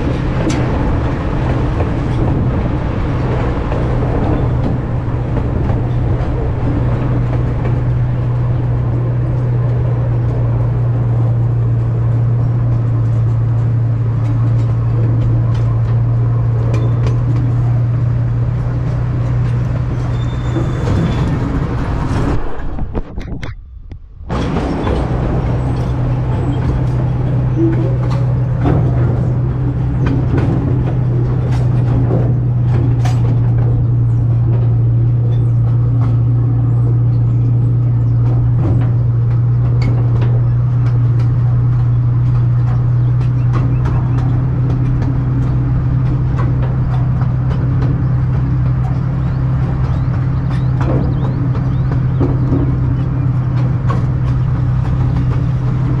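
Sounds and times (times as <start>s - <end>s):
miniature train engine drone: 0.0s - 23.0s, 24.3s - 56.0s
train cars clicking on track: 0.0s - 23.6s, 24.3s - 56.0s.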